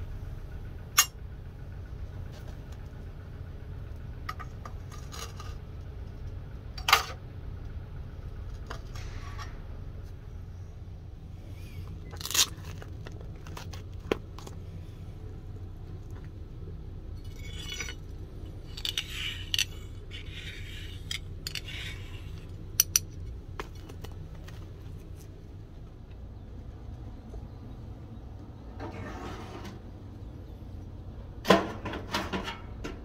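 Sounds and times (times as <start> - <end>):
low hum: 0.0 - 33.0
steel blade scraping: 17.2 - 23.1.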